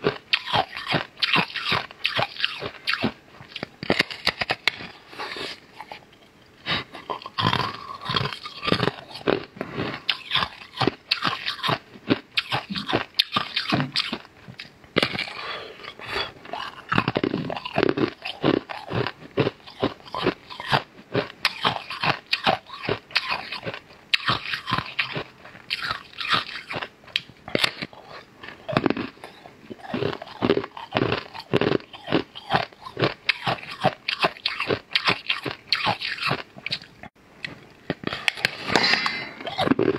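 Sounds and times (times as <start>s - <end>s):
person chewing crunchy food: 0.0s - 39.9s.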